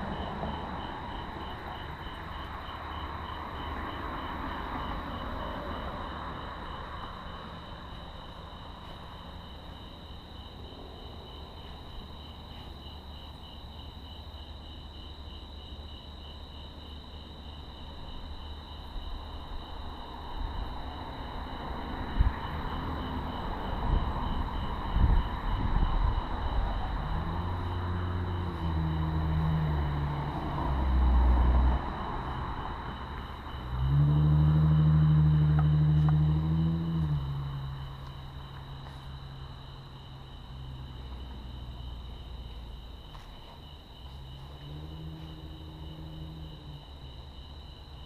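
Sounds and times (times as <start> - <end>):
crickets chirping: 0.0 - 48.0
low rumbling noise: 18.2 - 48.0
low droning hum: 23.9 - 43.1.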